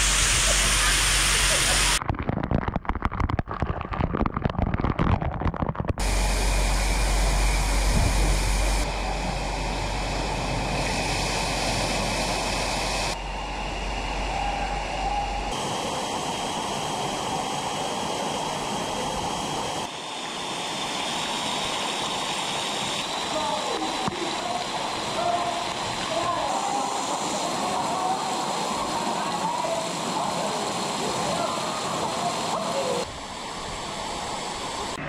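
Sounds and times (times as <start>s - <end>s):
fountain water running: 0.0s - 2.0s, 16.2s - 35.0s
waterfall crashing and splashing: 0.0s - 2.0s, 15.5s - 34.9s.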